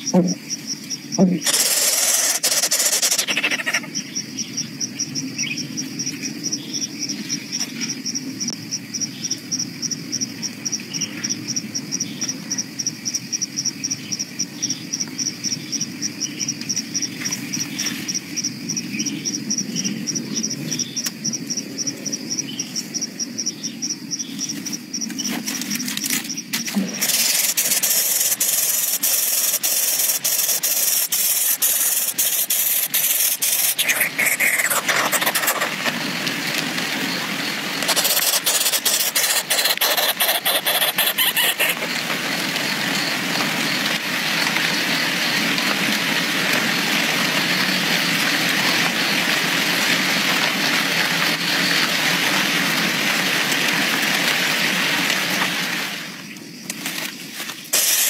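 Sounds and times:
insect chirping: 0:00.0 - 0:53.4, 0:55.5 - 0:58.0
bright even hiss: 0:26.6 - 0:34.8, 0:57.7 - 0:58.0.

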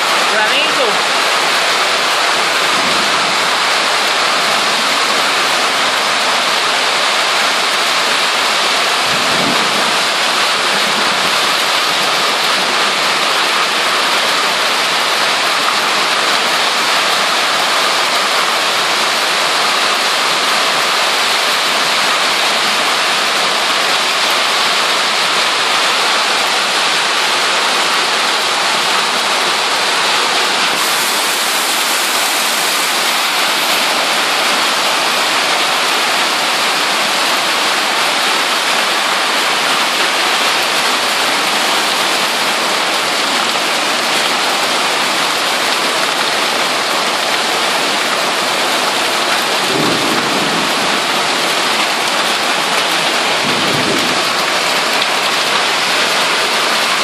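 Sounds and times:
runoff rushing along gutter: 0:00.0 - 0:44.7
hail and rain pelting pavement: 0:00.0 - 0:57.0.

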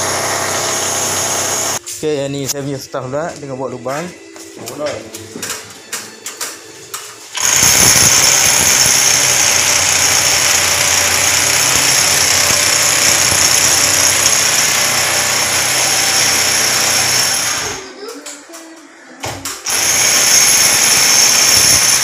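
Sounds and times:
power drill boring into wall: 0:00.0 - 0:01.8, 0:07.4 - 0:17.8, 0:19.6 - 0:22.0.

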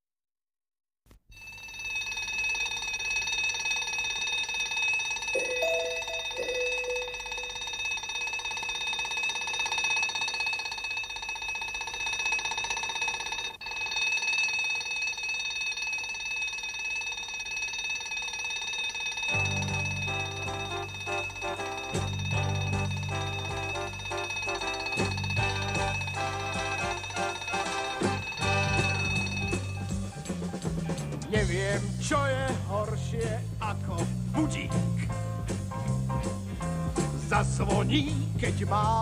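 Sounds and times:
alarm clock bell ringing: 0:01.3 - 0:30.4
music: 0:05.4 - 0:07.2, 0:19.4 - 0:39.0.

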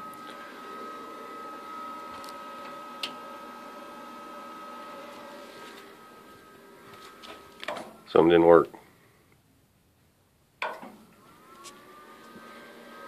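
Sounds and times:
stepper motor whine: 0:00.0 - 0:08.1, 0:11.0 - 0:13.0.

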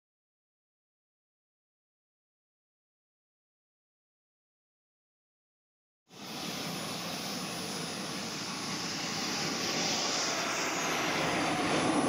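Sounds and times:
small gas turbine whining: 0:06.1 - 0:12.0.

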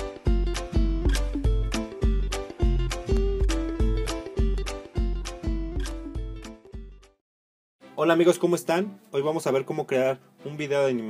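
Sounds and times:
intro music with bass beat: 0:00.0 - 0:07.0.

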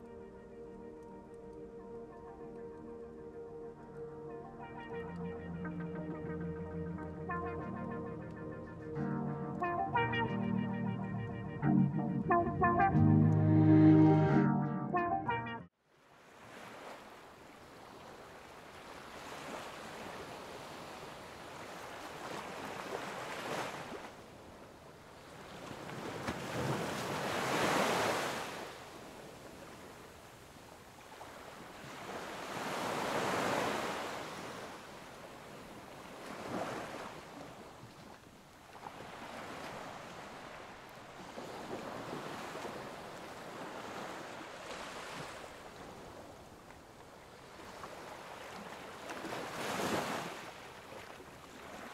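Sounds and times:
waves washing onto shore: 0:16.1 - 0:51.9.

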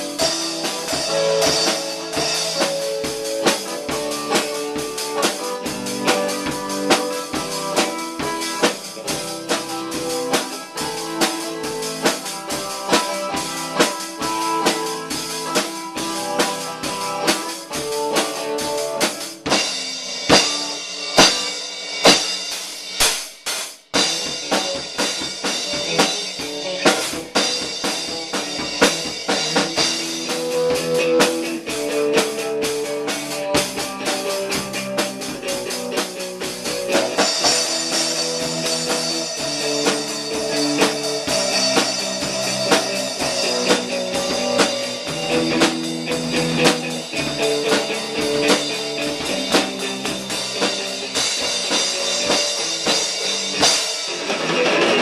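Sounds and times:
electric guitar chords: 0:00.0 - 0:22.0, 0:24.0 - 0:55.0
drum kit beat: 0:00.0 - 0:55.0
crashing cymbals: 0:37.1 - 0:54.2.

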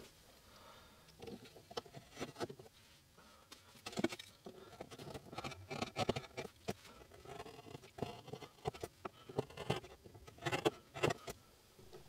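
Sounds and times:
carving tool scraping wood: 0:03.9 - 0:11.4.

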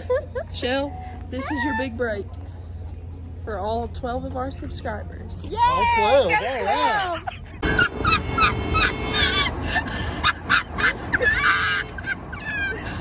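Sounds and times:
women shrieking with laughter: 0:01.4 - 0:02.0, 0:05.6 - 0:13.0.

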